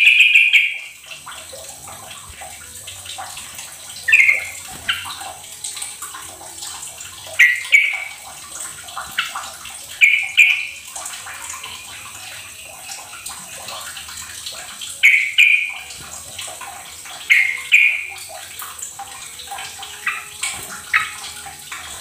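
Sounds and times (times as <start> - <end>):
bulbul calling: 0.0 - 0.9, 4.0 - 5.3, 7.4 - 8.2, 10.0 - 10.8, 15.0 - 15.9, 17.2 - 18.2.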